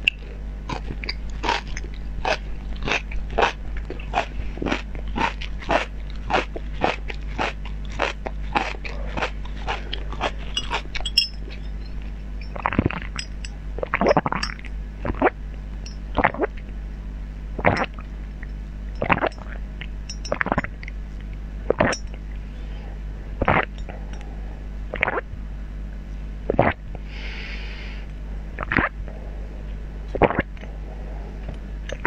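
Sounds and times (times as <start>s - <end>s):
crunching bites and chewing: 0.1s - 16.7s.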